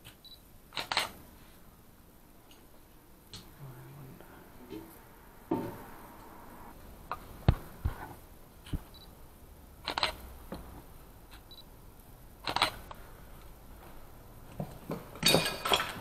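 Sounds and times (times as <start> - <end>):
sharp clicks and knocks: 9.8 - 11.5.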